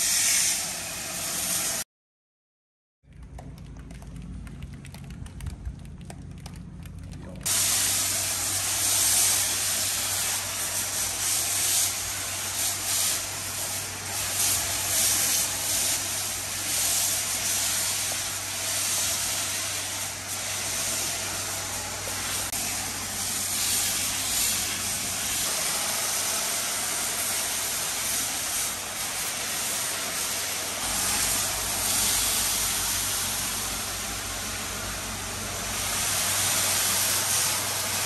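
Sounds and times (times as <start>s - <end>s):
pressure washer spraying hiss: 0.0s - 1.8s, 7.5s - 38.0s
steady low hum: 30.0s - 38.0s.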